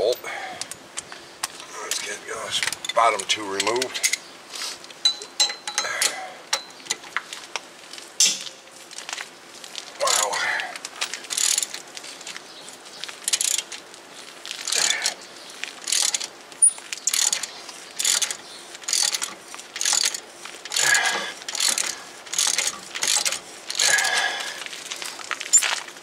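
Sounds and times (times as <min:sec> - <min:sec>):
ratchet wrench clicking: 0:11.3 - 0:11.8, 0:13.3 - 0:13.7, 0:14.6 - 0:15.2, 0:15.8 - 0:24.3.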